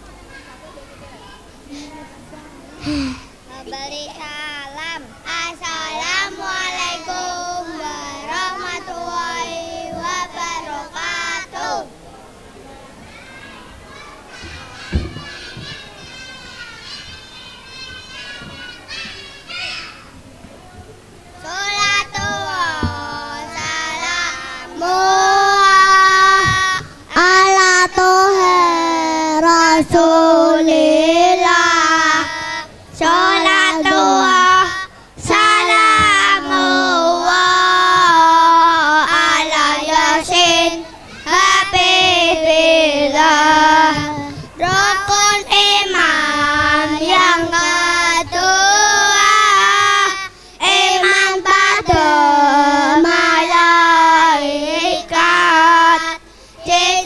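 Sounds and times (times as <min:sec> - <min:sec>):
boys singing into microphones: 0:02.8 - 0:11.9, 0:21.4 - 0:57.0.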